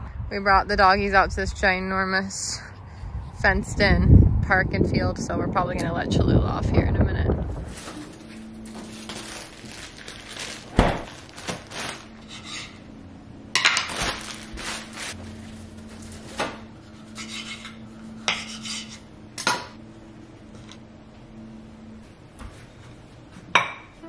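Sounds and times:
faint steady hum: 0.0 - 24.0
plastic bag crinkling: 7.6 - 12.4, 13.6 - 16.4.

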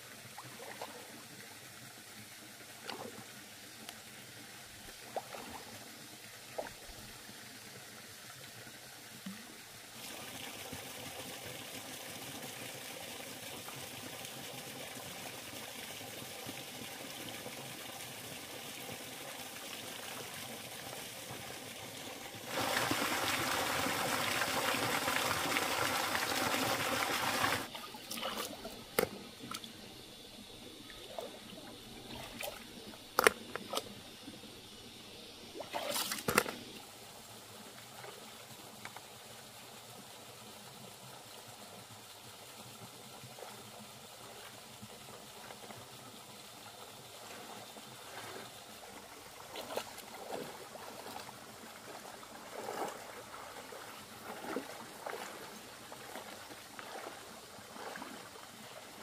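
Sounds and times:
water sloshing and trickling: 0.2 - 1.4, 4.6 - 7.2, 21.3 - 34.8, 35.5 - 36.9, 43.2 - 59.0
pouring water rushing: 19.2 - 29.6.

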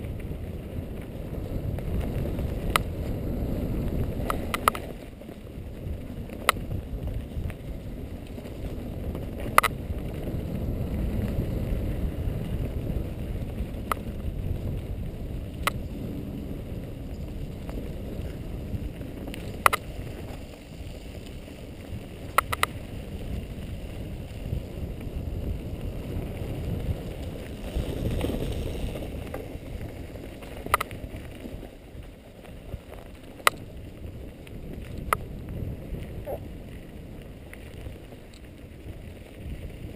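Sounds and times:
bike clacking over bumps: 0.0 - 24.6
wind and tyres rumbling: 0.0 - 39.9.

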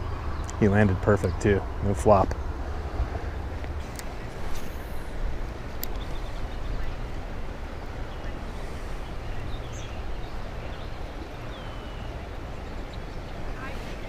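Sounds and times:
steady low rumble: 0.0 - 14.0
faint bird chirps: 5.7 - 14.0.

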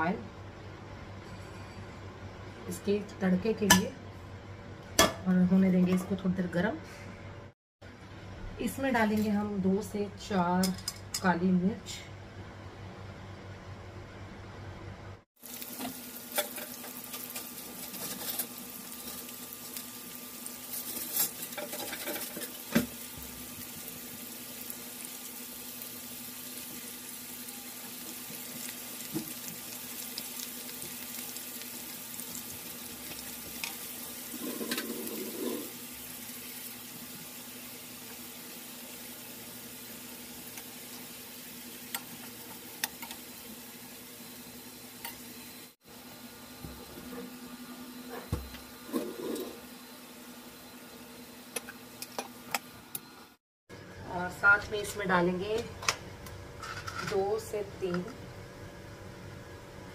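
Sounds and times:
onions sizzling in oil: 15.4 - 47.0
stirring in pan: 32.3 - 37.3.

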